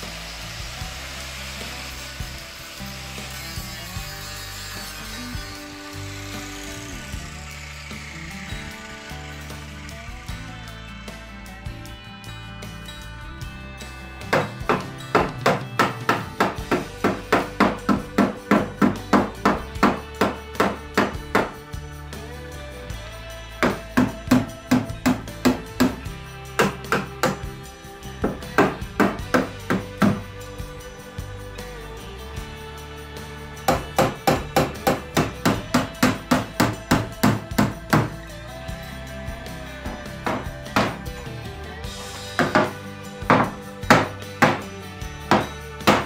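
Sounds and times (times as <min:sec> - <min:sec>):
background music: 0:00.0 - 0:46.0
hammer beating sheet steel: 0:14.2 - 0:21.8, 0:23.6 - 0:30.6, 0:33.6 - 0:38.3, 0:39.8 - 0:41.1, 0:42.3 - 0:46.0.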